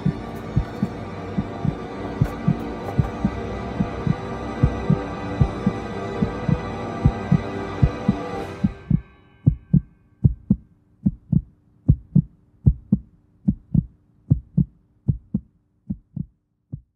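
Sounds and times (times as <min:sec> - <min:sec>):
dark music drone: 0:00.0 - 0:10.7
heartbeat thumps: 0:00.0 - 0:16.9.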